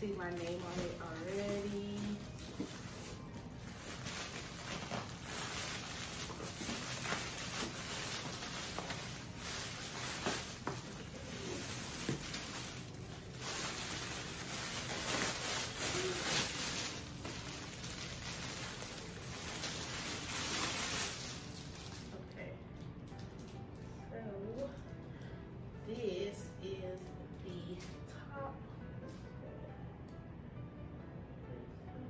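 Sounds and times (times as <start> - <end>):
plastic packaging crinkling: 0.0 - 23.9.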